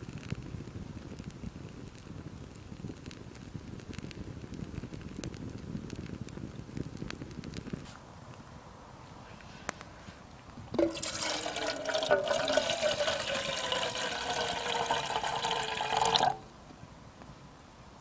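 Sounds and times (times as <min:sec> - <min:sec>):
water pouring into a kettle: 0:10.7 - 0:16.4.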